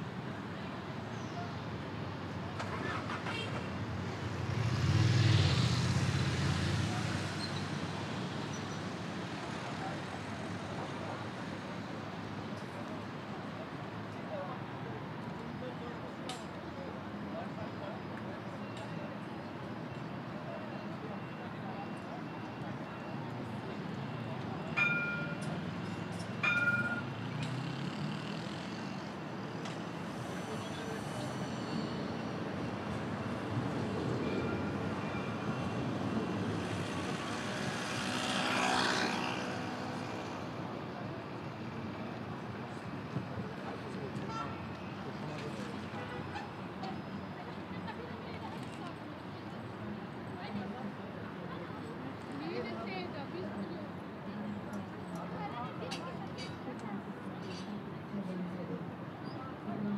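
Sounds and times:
city traffic noise: 0.0s - 59.9s
people's voices: 40.0s - 59.9s.

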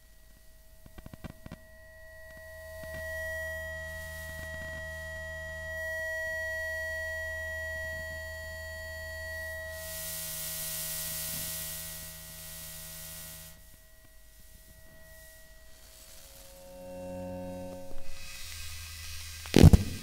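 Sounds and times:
electronic whine: 0.0s - 20.0s
low hum: 0.6s - 20.0s
hiss: 3.9s - 4.7s, 9.3s - 20.0s.

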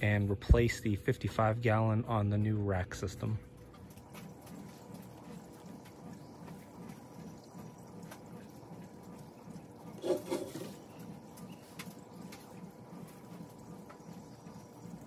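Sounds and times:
paint roller rolling in wet paint: 3.7s - 15.0s.

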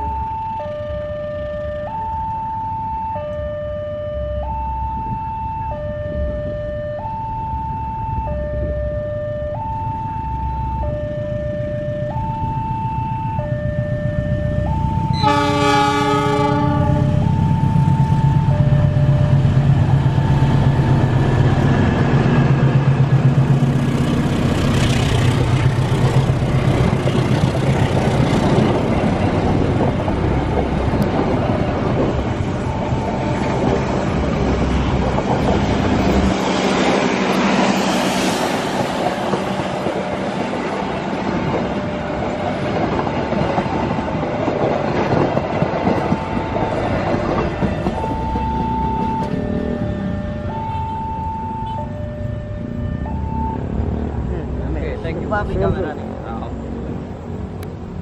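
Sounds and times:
level crossing warning signal: 0.0s - 23.4s, 24.5s - 37.9s, 39.0s - 54.6s
locomotive engine running: 9.9s - 58.0s
train horn: 15.1s - 17.6s, 47.4s - 51.9s
train wheels clattering on rails: 20.8s - 49.8s.

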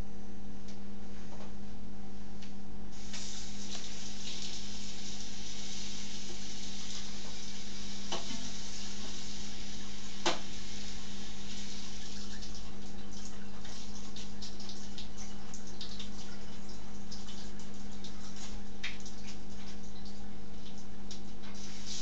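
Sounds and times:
faucet water running: 2.9s - 22.0s.

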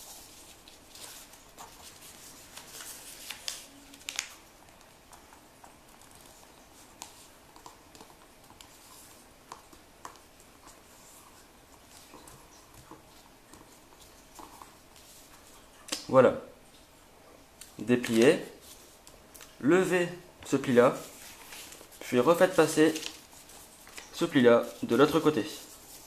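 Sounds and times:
paper rustling and crinkling: 0.0s - 15.9s, 20.5s - 26.0s.

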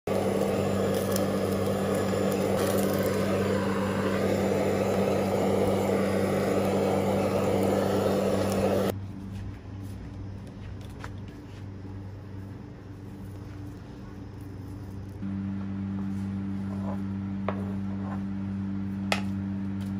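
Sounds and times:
blowtorch jet hissing: 0.0s - 9.0s.

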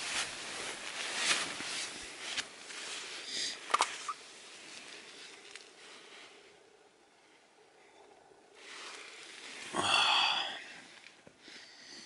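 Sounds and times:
fabric rustling: 0.0s - 3.2s.

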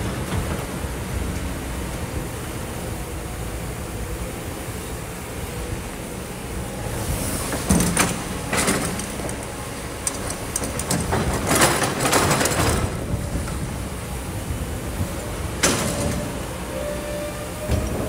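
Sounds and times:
excavator diesel engine rumbling: 0.0s - 18.0s.

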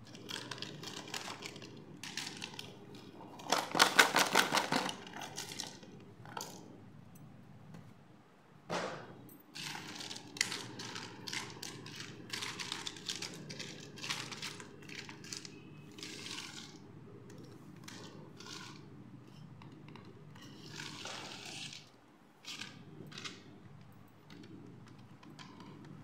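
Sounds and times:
plastic pieces clattering on table: 0.0s - 6.6s, 9.6s - 18.8s
rustle of sliding plastic: 20.4s - 23.5s.

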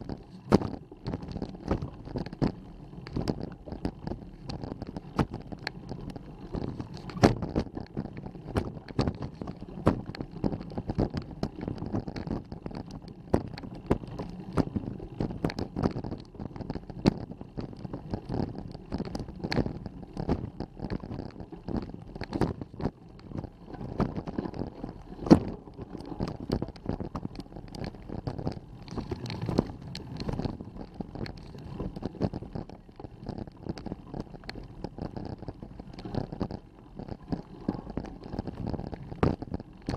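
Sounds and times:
bike camera knocking and rattling: 0.0s - 39.9s
wind on microphone: 6.5s - 39.9s.

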